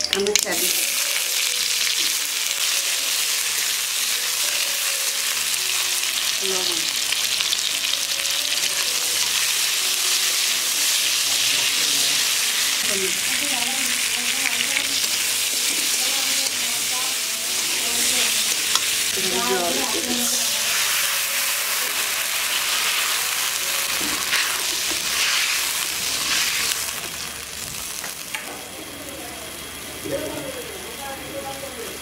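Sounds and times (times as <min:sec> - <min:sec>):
chutney sizzling in hot oil: 0:00.0 - 0:32.0.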